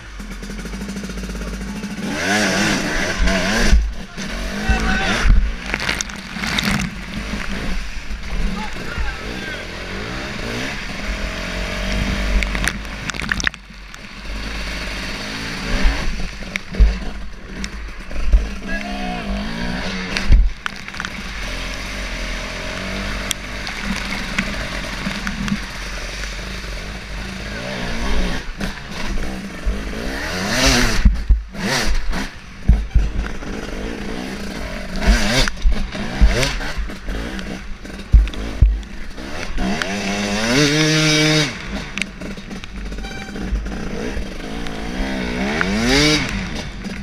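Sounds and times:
motorcycle engine revving: 0.0s - 47.0s
water spraying: 2.8s - 17.2s, 20.1s - 27.8s
low thumps on microphone: 4.7s - 7.6s, 31.0s - 31.6s, 38.0s - 38.8s.

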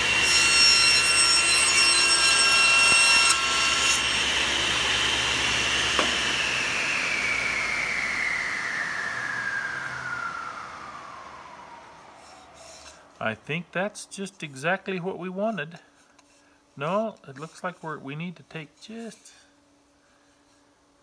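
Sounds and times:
table saw cutting wood: 0.0s - 13.4s
saw blade whine spinning down: 3.6s - 13.7s.

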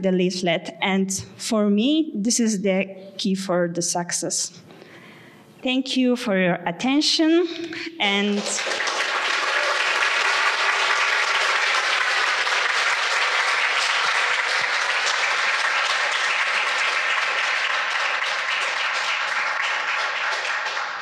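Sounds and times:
audience applauding: 8.2s - 21.0s.

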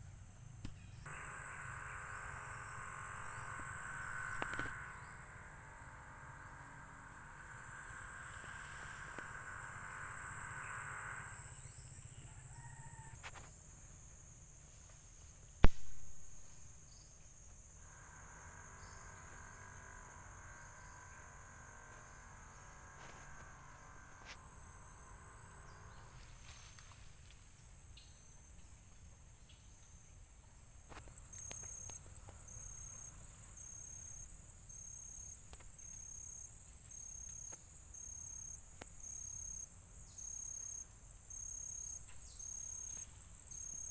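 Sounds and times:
insects buzzing: 0.0s - 43.9s
high pulsed call: 1.1s - 13.2s, 17.8s - 27.4s.

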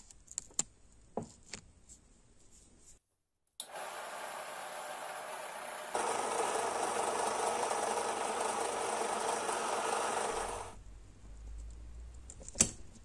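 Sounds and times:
drill press drilling brass: 3.6s - 10.8s.

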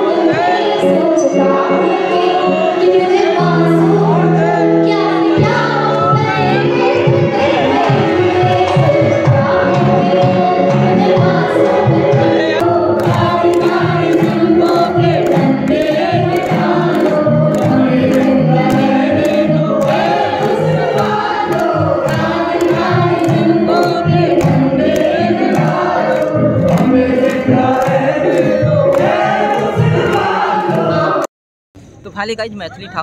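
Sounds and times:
crowd singing along: 0.0s - 31.3s
drum: 7.1s - 30.4s
crowd clapping in time: 12.6s - 31.3s.

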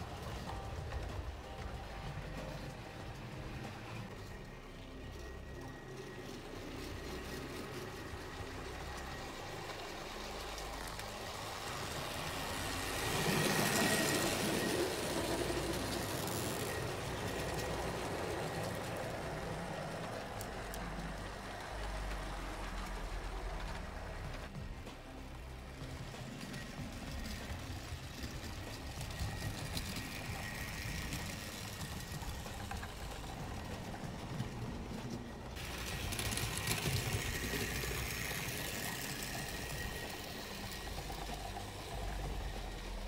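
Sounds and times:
wheels rumbling on rails: 0.0s - 43.0s
model train motor humming: 3.1s - 24.5s, 25.6s - 43.0s.

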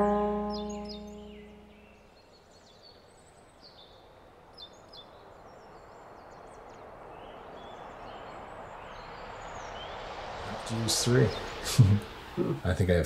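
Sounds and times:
songbird chirps: 0.0s - 12.8s
background hiss: 0.0s - 13.0s.

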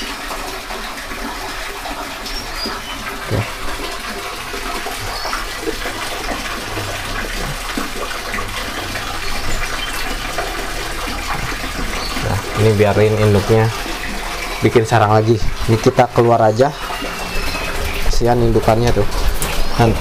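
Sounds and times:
faint high bird chirps: 16.7s - 17.9s.

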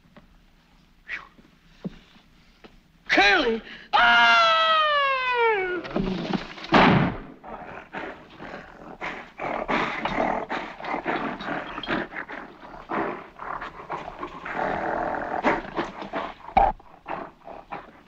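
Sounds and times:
gorilla growl: 7.3s - 18.0s
gorilla grunts and huffs: 7.4s - 18.0s.

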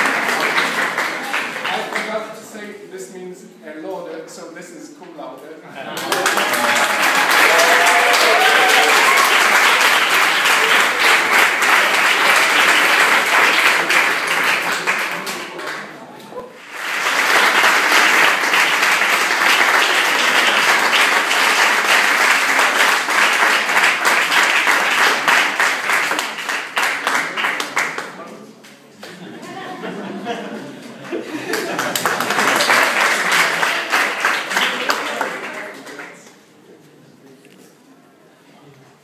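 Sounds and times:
audience applauding: 0.0s - 2.3s, 5.9s - 28.2s, 30.8s - 36.4s.

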